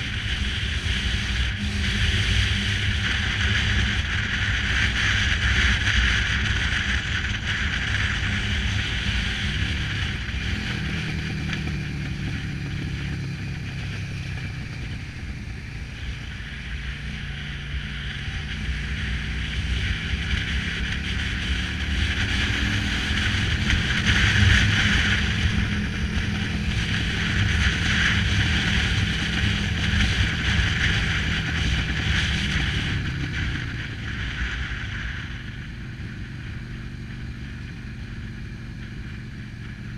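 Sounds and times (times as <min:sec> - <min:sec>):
motorcycle engine revving: 0:00.0 - 0:39.9
wind over microphone: 0:00.0 - 0:39.9.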